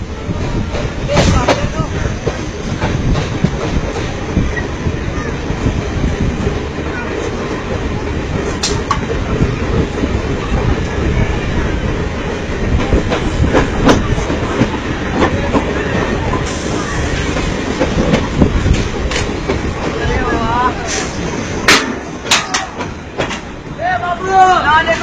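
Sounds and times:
train coaches rumbling and rattling: 0.0 - 25.0
sharp clacks: 8.6 - 9.1.

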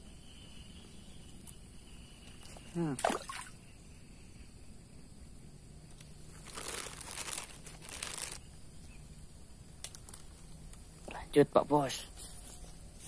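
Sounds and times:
crinkling rustle: 5.9 - 9.0, 9.8 - 11.0.

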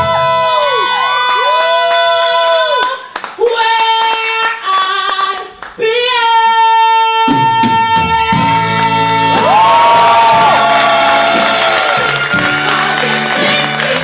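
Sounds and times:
band playing: 7.5 - 14.0.

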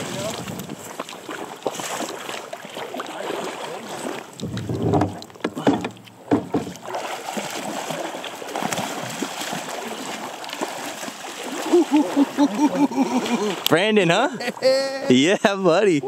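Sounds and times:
fish thrashing and water splashing: 0.0 - 15.1
sharp knocks: 4.4 - 6.8.

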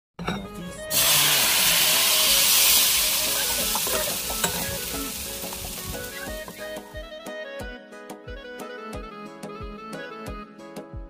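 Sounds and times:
soft music: 0.2 - 11.0
batter sizzling in frying pan: 0.9 - 6.9.

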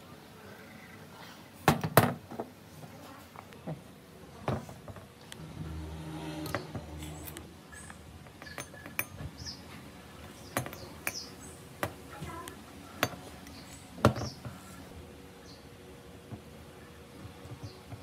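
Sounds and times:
metal tools clinking and knocking: 6.4 - 9.3, 10.5 - 12.0.

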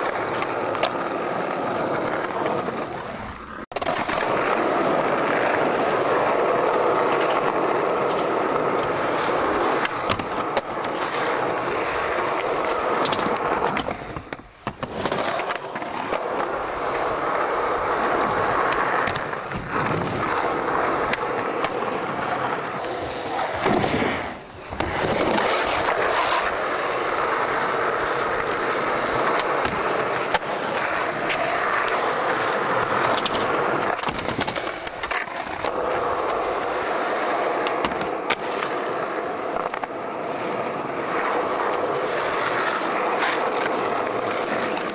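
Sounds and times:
skateboard popping and landing: 0.0 - 44.9
skateboard wheels rolling on concrete: 0.0 - 44.9.

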